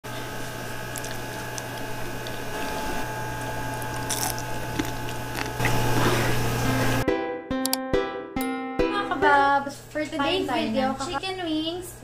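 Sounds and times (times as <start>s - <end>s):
steady low hum: 0.1s - 7.0s
crunchy chewing: 0.3s - 6.4s.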